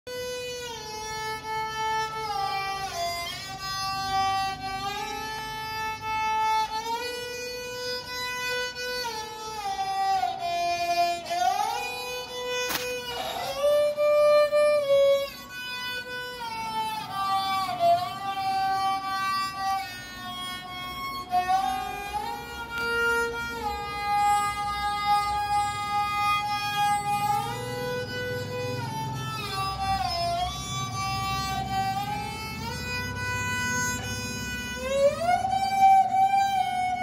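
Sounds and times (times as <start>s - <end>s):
bowed lute melody: 0.1s - 37.0s
sharp click: 12.6s - 13.3s.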